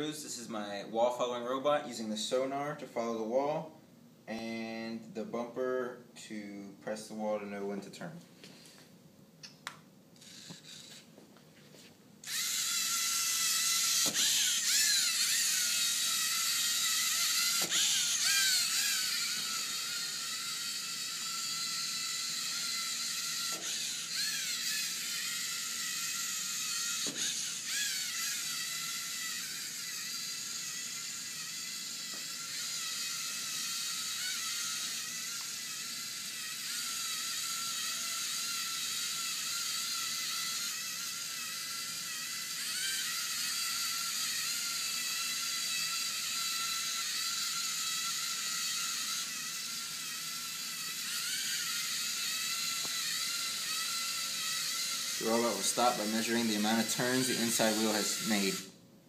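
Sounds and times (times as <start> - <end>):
electric motors whining: 10.2 - 11.2, 12.2 - 58.8.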